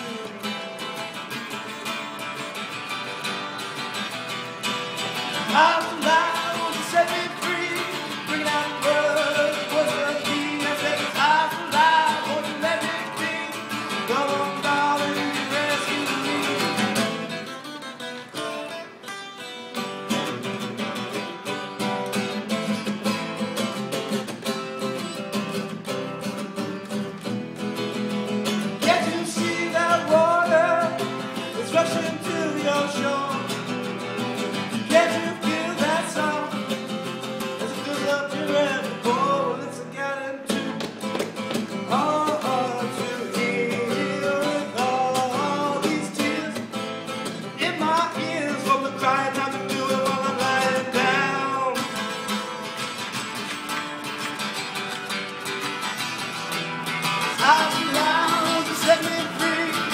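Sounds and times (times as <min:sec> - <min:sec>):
man singing: 0:00.0 - 0:00.9, 0:05.0 - 0:17.5, 0:28.6 - 0:40.9, 0:41.7 - 0:52.3, 0:57.2 - 0:59.9
acoustic guitar strumming: 0:00.0 - 0:59.9.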